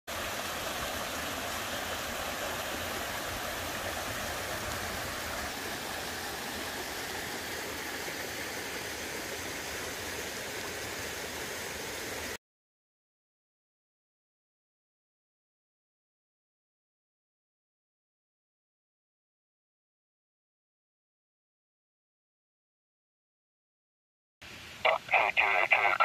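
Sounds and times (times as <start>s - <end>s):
stream rushing over rocks: 0.1s - 12.4s, 24.8s - 26.0s.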